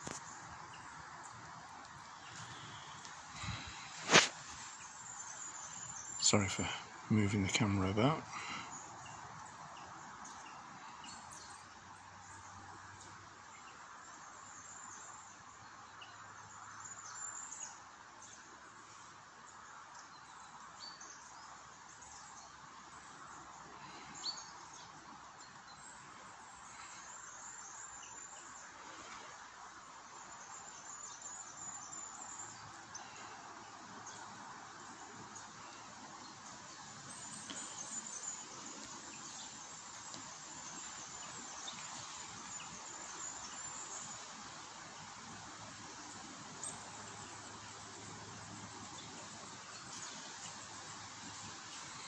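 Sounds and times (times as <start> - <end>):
soft woodland hiss: 0.0 - 52.0.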